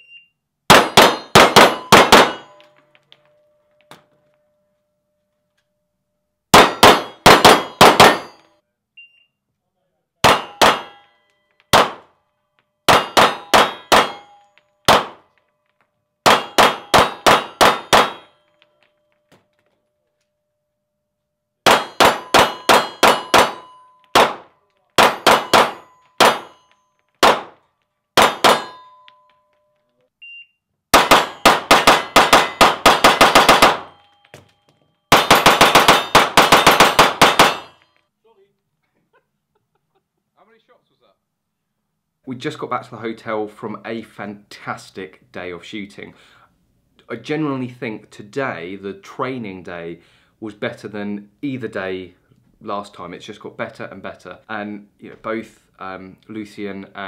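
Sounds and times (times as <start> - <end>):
pistol shots echoing indoors: 0.7 - 2.7, 6.5 - 8.4, 10.2 - 11.1, 11.7 - 12.2, 12.9 - 14.2, 14.8 - 15.4, 16.2 - 18.3, 21.6 - 26.6, 27.2 - 27.6, 28.2 - 28.8, 30.9 - 34.1, 35.1 - 37.8.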